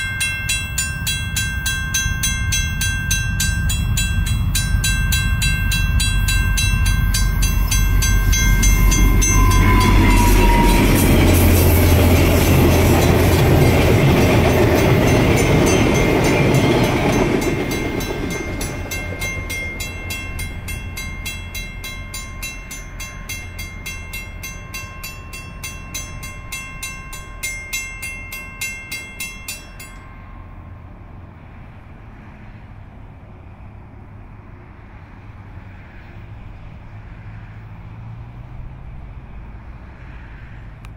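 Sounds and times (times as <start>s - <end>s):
level-crossing bell ringing: 0.0s - 30.7s
diesel locomotive rumbling past: 0.0s - 40.9s.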